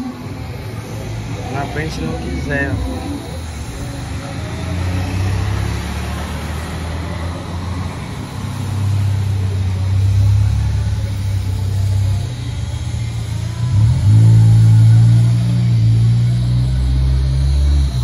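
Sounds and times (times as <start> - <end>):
welding arc humming and hissing: 7.6 - 18.0.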